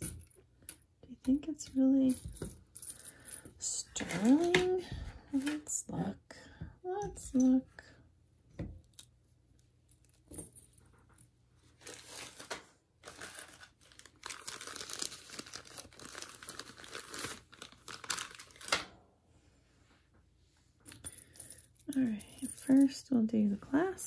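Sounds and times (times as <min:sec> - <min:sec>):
crinkling packaging rustling: 0:11.7 - 0:18.8.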